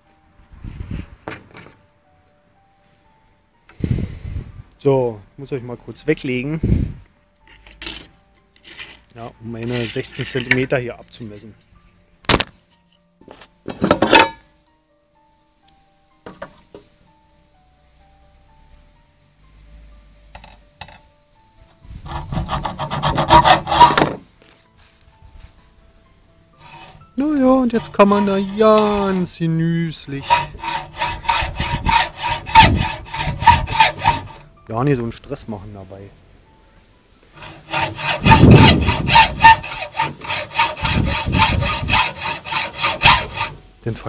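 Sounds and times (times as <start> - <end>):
hacksaw cutting copper pipe: 7.5 - 9.0, 22.1 - 24.2, 26.6 - 29.3, 30.0 - 34.5, 37.4 - 43.6.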